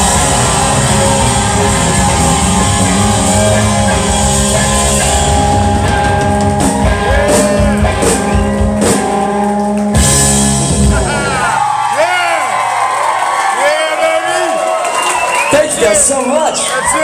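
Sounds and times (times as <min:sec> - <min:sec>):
rock band playing loud: 0:00.0 - 0:12.8.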